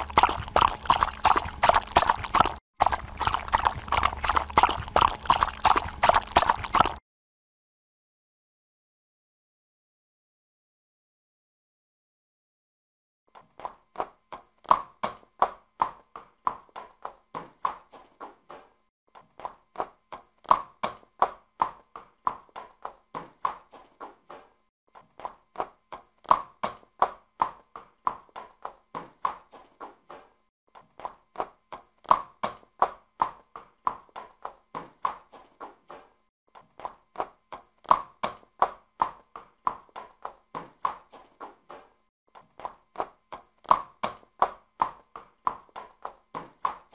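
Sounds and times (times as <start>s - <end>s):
horse hooves clip-clopping: 0.0s - 7.0s.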